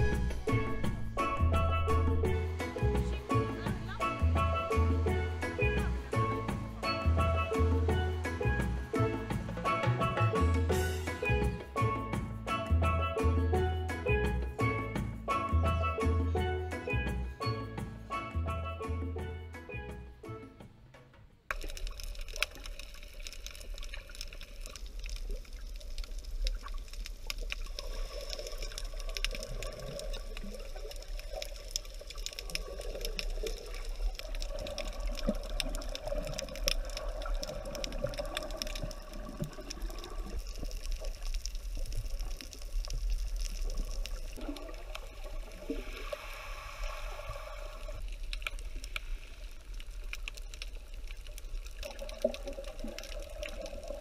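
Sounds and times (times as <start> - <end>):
underwater water noise: 0.0 - 11.7, 21.5 - 54.0
small crackling clicks: 21.0 - 45.8, 48.0 - 54.0.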